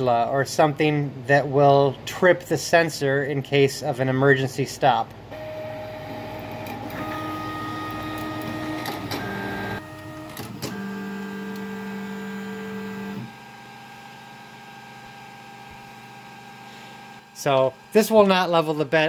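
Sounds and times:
stepper motors whining: 0:05.3 - 0:19.0
printer click: 0:06.4 - 0:11.8.

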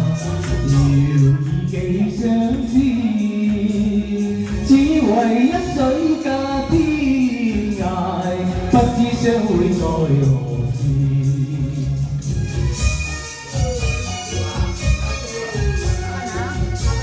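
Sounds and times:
man singing into microphone: 0:00.0 - 0:12.6
karaoke backing track: 0:00.0 - 0:17.0.

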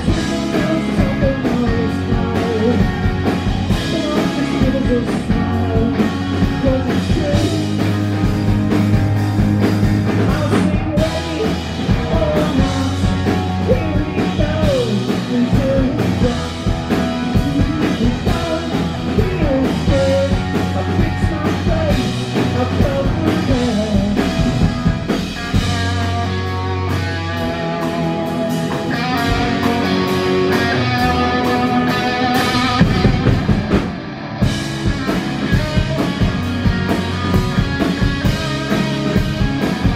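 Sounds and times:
man singing lead vocal: 0:00.0 - 0:08.5, 0:10.1 - 0:24.8, 0:27.5 - 0:33.2, 0:38.1 - 0:39.9
bass guitar: 0:00.0 - 0:39.9
drum kit: 0:00.0 - 0:39.9
electric guitars: 0:00.0 - 0:39.9.

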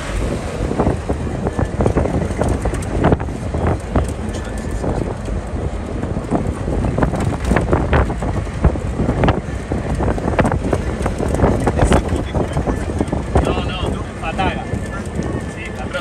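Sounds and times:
jeep engine rumbling: 0:00.0 - 0:16.0
vehicle knocks and rattles: 0:00.0 - 0:16.0
wind buffeting microphone: 0:00.0 - 0:16.0.

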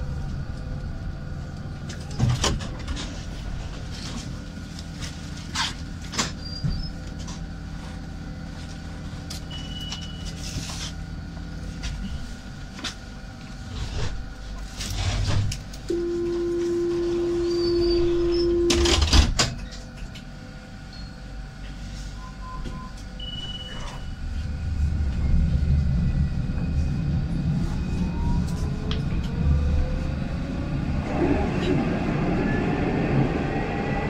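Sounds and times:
low rumble of tram: 0:00.0 - 0:34.0
tram motors whining: 0:00.0 - 0:34.0
door-closing warning tone: 0:09.4 - 0:10.6, 0:15.9 - 0:19.8, 0:22.1 - 0:24.3.

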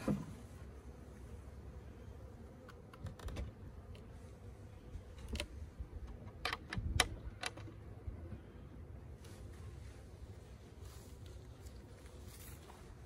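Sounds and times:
beehive panel knocks and clicks: 0:05.2 - 0:07.8.

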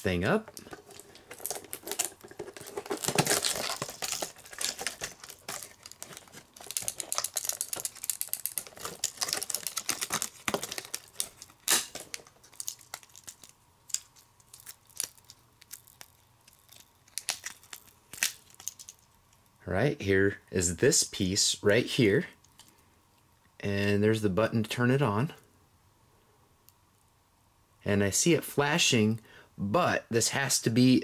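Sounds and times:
plastic packaging crinkling: 0:00.0 - 0:19.2.

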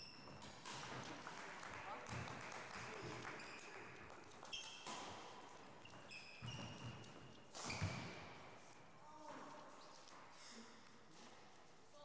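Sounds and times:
shoes squeaking on wooden floor: 0:05.7 - 0:08.6.

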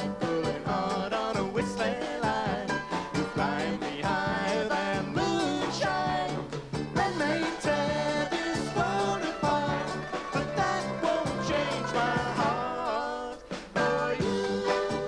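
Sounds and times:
man singing lead: 0:00.0 - 0:14.9
folk band playing: 0:00.0 - 0:15.0.

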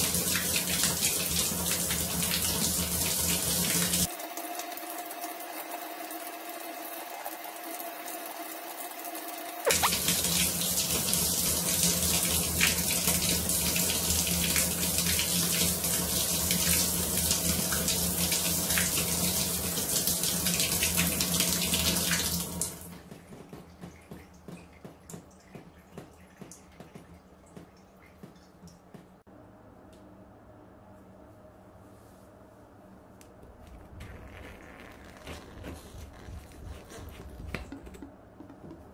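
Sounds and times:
shower spraying water on hands: 0:00.0 - 0:04.1, 0:09.7 - 0:23.0, 0:33.8 - 0:37.7.

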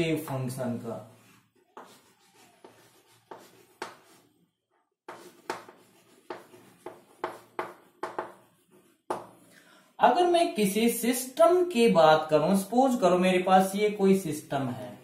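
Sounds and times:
chalk scratching on blackboard: 0:01.1 - 0:04.3, 0:05.1 - 0:09.5.

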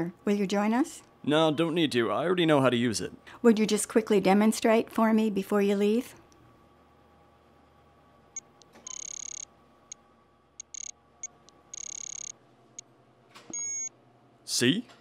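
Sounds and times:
thermometer beeping: 0:08.4 - 0:09.5, 0:10.6 - 0:12.9, 0:13.6 - 0:13.9.

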